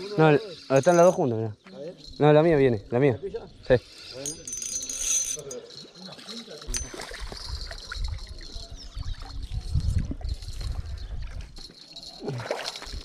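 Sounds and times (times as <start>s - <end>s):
wind on microphone: 7.0s - 11.7s.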